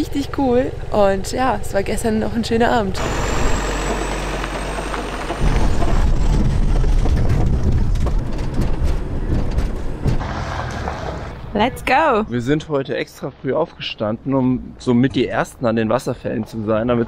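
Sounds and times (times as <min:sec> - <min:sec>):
diesel engine rumble: 0:00.0 - 0:12.7
road noise: 0:00.0 - 0:17.0.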